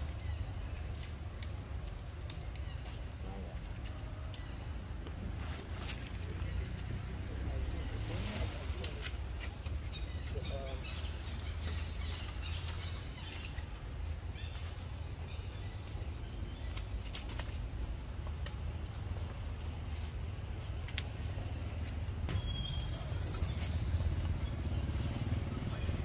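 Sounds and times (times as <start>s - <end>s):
high insect drone: 0.0s - 26.0s
rising bird chirp: 22.3s - 26.0s.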